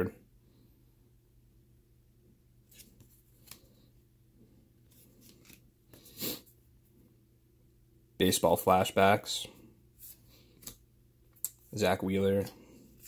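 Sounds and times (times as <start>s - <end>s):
paper cards scraping: 2.7s - 3.8s, 4.8s - 6.4s.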